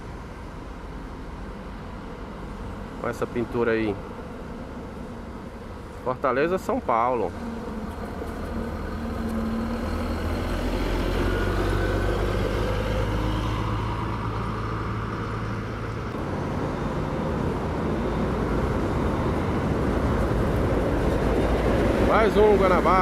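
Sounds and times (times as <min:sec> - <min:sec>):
coach diesel engine drone: 0:00.0 - 0:23.0.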